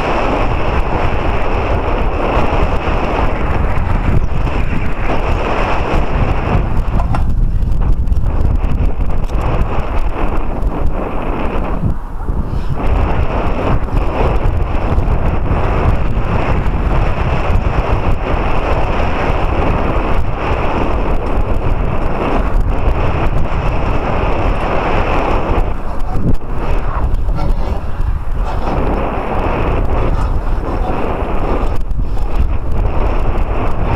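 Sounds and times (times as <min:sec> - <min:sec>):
wind buffeting microphone: 0:00.0 - 0:33.9.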